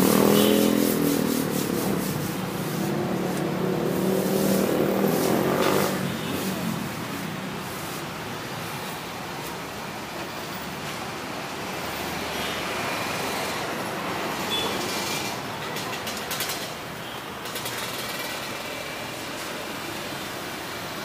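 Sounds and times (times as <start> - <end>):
vehicle passing: 0.0 - 8.0
road traffic: 0.0 - 21.0
sharp clicks and clatters: 14.8 - 18.7.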